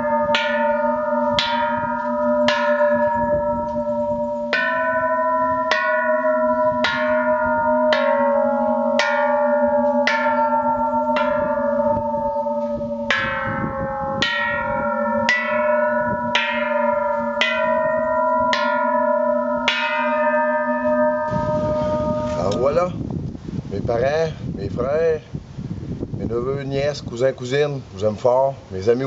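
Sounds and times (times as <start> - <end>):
bronze bells struck: 0.0 - 23.0.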